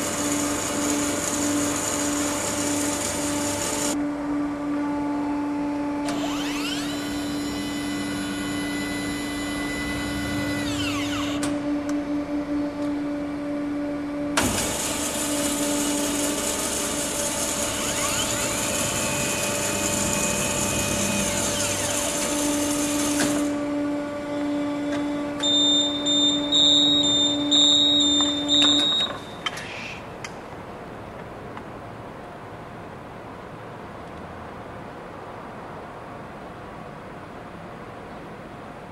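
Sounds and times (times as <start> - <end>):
high-pitched whine: 0.0 - 29.7
band saw motor whining: 4.7 - 29.4.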